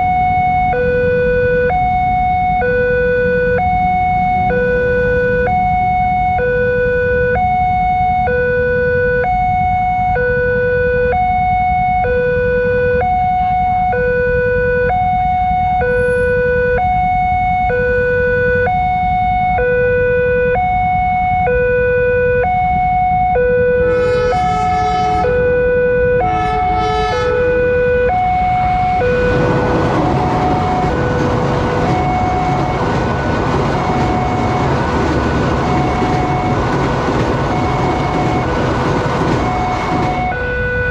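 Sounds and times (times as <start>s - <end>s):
level-crossing alarm wailing: 0.0s - 40.9s
passenger train rumbling: 0.0s - 40.9s
train horn blasts: 23.7s - 32.9s.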